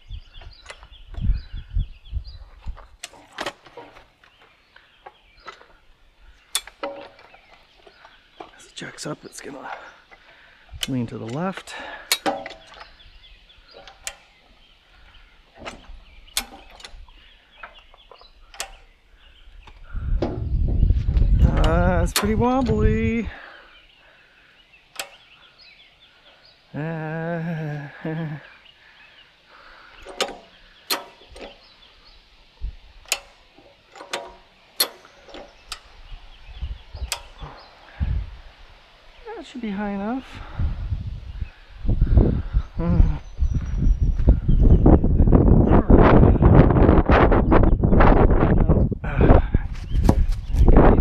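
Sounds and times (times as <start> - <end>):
faint bird chirping: 0.0 - 51.0
sharp clicks and knocks: 6.5 - 9.1, 10.8 - 12.9, 13.7 - 14.3, 15.5 - 17.0, 17.6 - 18.9, 19.6 - 22.8, 24.9 - 25.2, 30.0 - 31.7, 33.0 - 35.9, 36.9 - 37.5
jack ratcheting metallic clicks: 30.0 - 31.6, 33.0 - 35.9.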